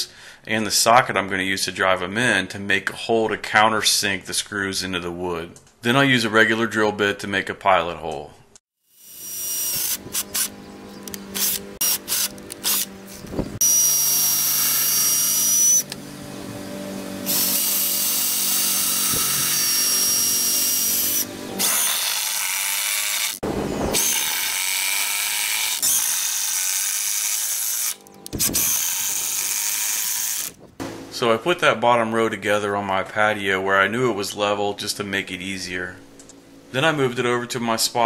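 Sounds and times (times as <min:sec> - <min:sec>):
cordless drill boring into wood: 0:08.9 - 0:10.5, 0:11.4 - 0:12.9, 0:13.6 - 0:16.0, 0:17.2 - 0:30.6.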